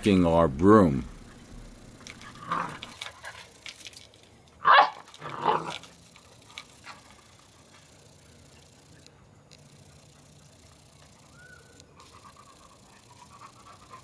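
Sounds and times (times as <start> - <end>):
puppy barking: 4.6 - 5.7.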